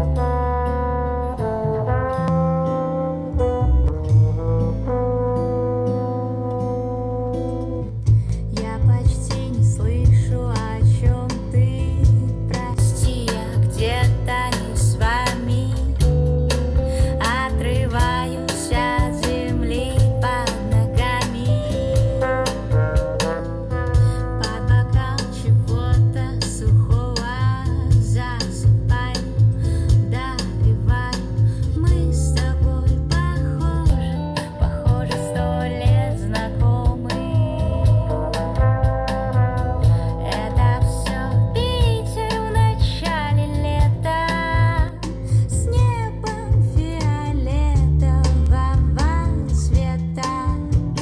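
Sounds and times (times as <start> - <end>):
song with singing and deep bass: 8.1 - 51.0
song with singer over loudspeakers: 40.0 - 45.2.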